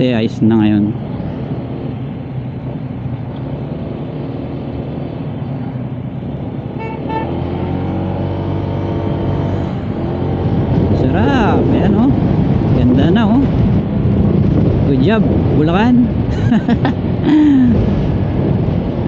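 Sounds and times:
wind and road noise: 0.0s - 19.0s
horn toots: 6.8s - 7.8s.

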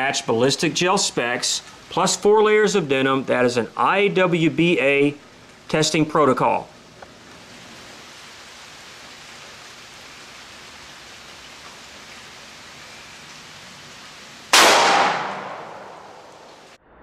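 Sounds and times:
light rain hiss: 0.0s - 16.8s
revolver gunshot with echo: 14.5s - 16.7s.

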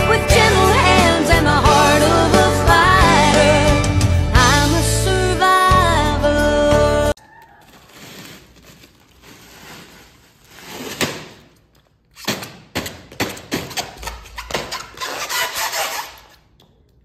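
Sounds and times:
plastic crinkling: 7.3s - 12.2s.

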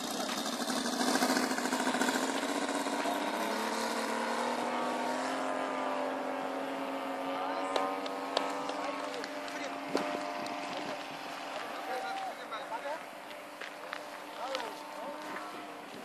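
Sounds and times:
model plane engine at high throttle: 0.0s - 11.7s.

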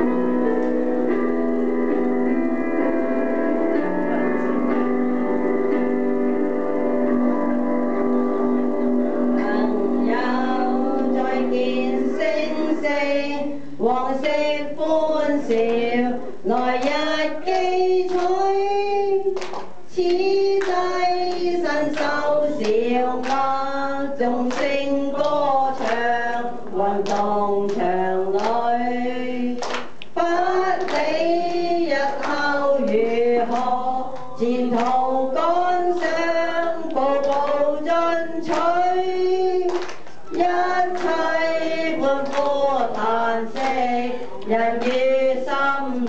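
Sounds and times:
group singing together: 7.9s - 46.0s
woman singing into microphone: 9.2s - 46.0s.

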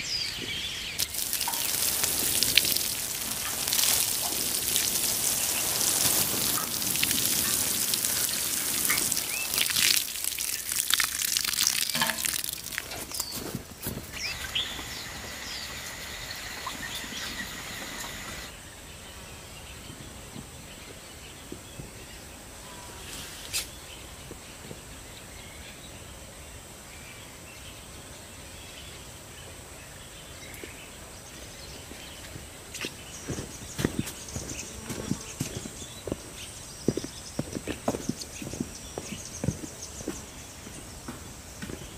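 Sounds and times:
birds chirping: 0.0s - 23.0s, 27.1s - 41.9s
water spray pattering on soil: 0.4s - 18.5s, 30.5s - 41.9s.

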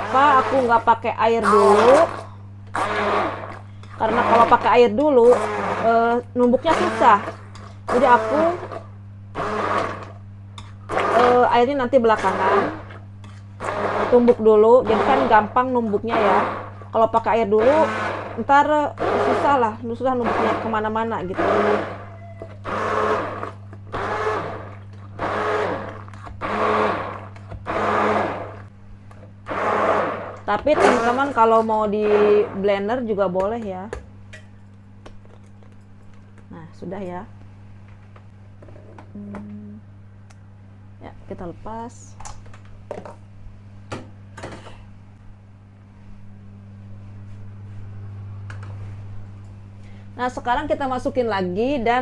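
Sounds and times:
hand blender motor humming: 0.0s - 6.0s, 6.7s - 8.8s, 9.4s - 10.2s, 10.9s - 13.0s, 13.6s - 16.8s, 17.6s - 28.7s, 29.5s - 32.6s
blender whooshing surge: 1.4s - 6.0s, 6.7s - 8.8s, 9.4s - 10.1s, 10.9s - 11.5s, 12.2s - 13.0s, 13.6s - 16.8s, 17.6s - 18.4s, 19.0s - 19.6s, 20.2s - 28.7s, 29.5s - 32.6s.

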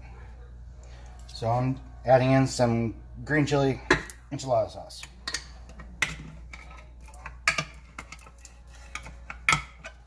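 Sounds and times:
tin can clinking on pot: 5.0s - 10.0s.

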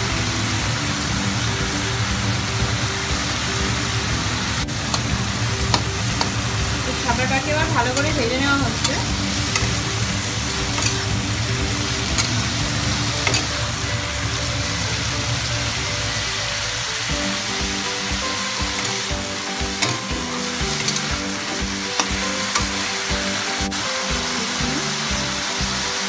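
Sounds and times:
food sizzling in hot oil: 0.0s - 26.0s
metal spatula scraping pan: 4.8s - 15.1s, 18.2s - 22.9s.

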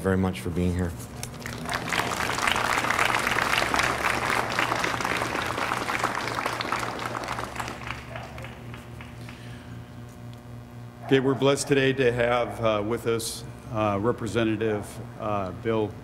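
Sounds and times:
audience applauding: 1.2s - 9.6s.

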